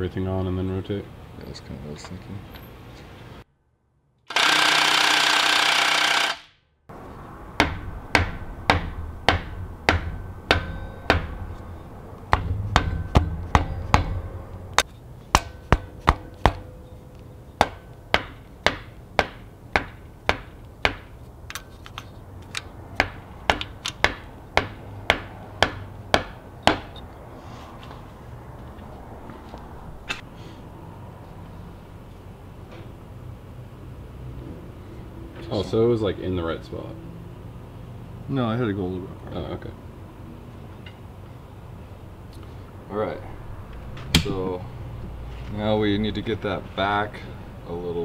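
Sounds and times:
hammer ringing on metal: 7.6s - 16.9s, 17.6s - 21.1s, 23.0s - 27.0s.

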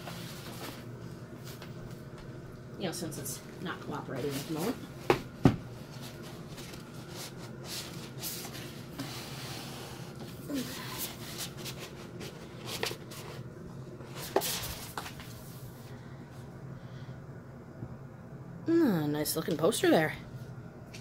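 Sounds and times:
paper rustling and rubbing: 5.8s - 15.6s.

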